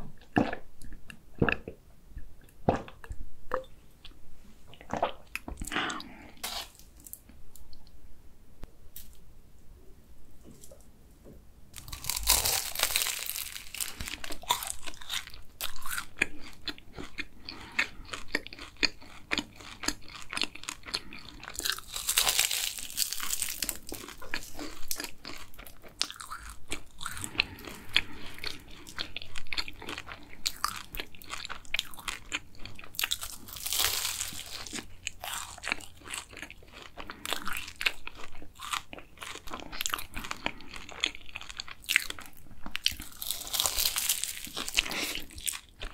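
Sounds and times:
chewing: 11.8 - 45.9
pastry crunching when bitten: 11.8 - 45.9.

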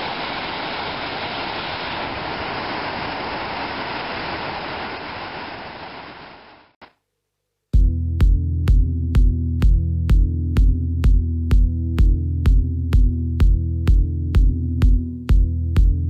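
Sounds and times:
water rushing through dam spillway: 0.0 - 6.7
electronic music with a beat: 7.8 - 16.0.

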